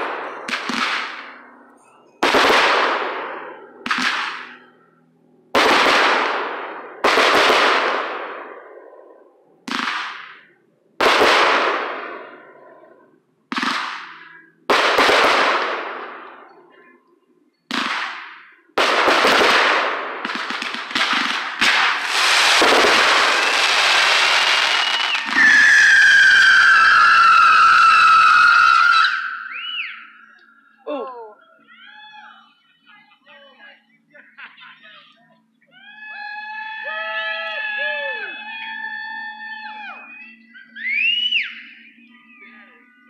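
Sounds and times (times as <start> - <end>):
firework bangs: 0.0 - 1.6, 2.2 - 4.6, 5.5 - 9.0, 9.6 - 12.5, 13.5 - 16.6, 17.7 - 29.7
whistling firework: 17.7 - 30.4, 35.8 - 43.0.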